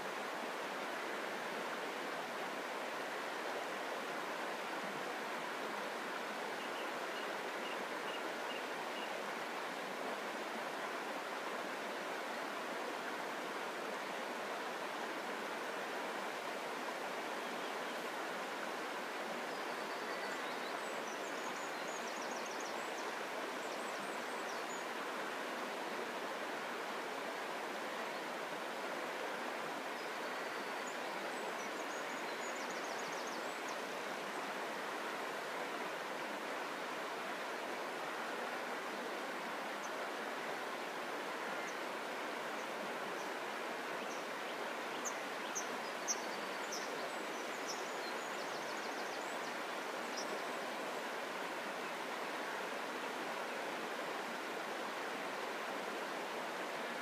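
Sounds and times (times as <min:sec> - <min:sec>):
river rushing over stones: 0:00.0 - 0:57.0
faint high birdsong: 0:06.5 - 0:09.8, 0:19.4 - 0:25.0, 0:29.8 - 0:34.6, 0:41.4 - 0:51.2.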